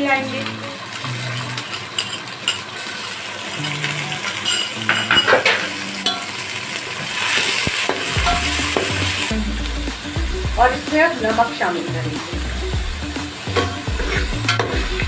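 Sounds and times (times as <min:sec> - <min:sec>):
onions sizzling in oil: 0:00.0 - 0:15.0
metal spoon scraping pot: 0:13.6 - 0:14.8.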